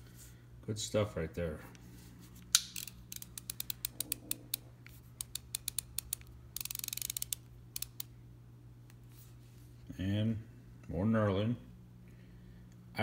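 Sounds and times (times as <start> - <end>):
ratcheting screwdriver clicking: 2.6 - 4.6, 5.2 - 8.1.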